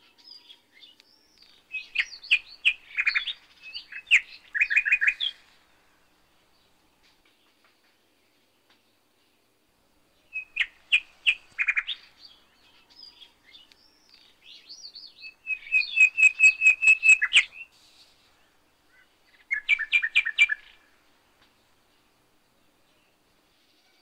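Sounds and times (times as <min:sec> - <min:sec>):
small bird chirping and warbling: 0:00.2 - 0:05.4, 0:10.3 - 0:17.8, 0:18.9 - 0:20.8.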